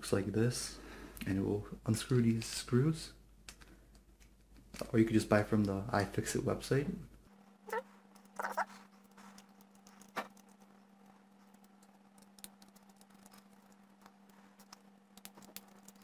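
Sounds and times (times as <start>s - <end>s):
steady low hum: 0.0s - 16.0s
small clicks and scratches: 7.7s - 16.0s.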